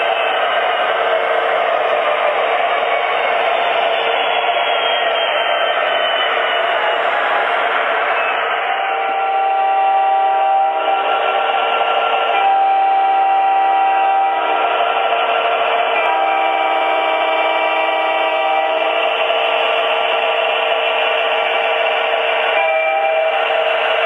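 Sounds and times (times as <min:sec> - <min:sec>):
train running rumble: 0:00.0 - 0:24.0
electronic train horns blasting: 0:07.0 - 0:19.7, 0:22.0 - 0:24.0.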